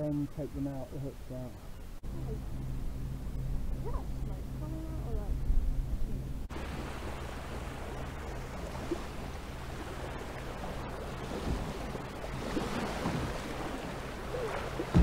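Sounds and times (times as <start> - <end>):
waves washing against hull: 3.2 - 15.0
wave breaking: 6.5 - 15.0.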